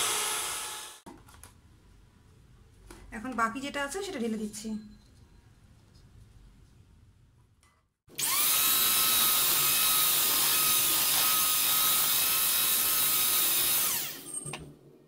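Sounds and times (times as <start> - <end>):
electric hand mixer whirring: 8.1 - 14.2.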